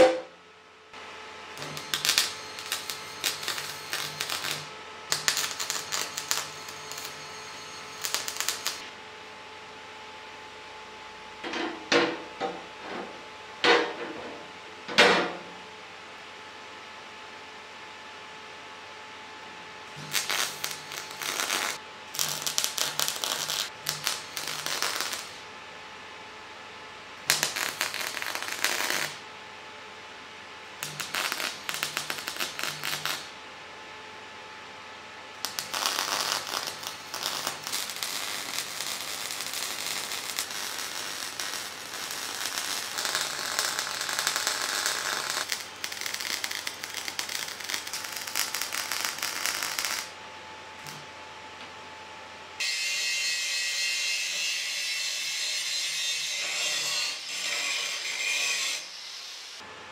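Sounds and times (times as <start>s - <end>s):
welding arc crackling: 1.6s - 8.9s, 20.0s - 25.4s, 27.2s - 29.2s, 30.8s - 33.3s, 35.4s - 50.2s.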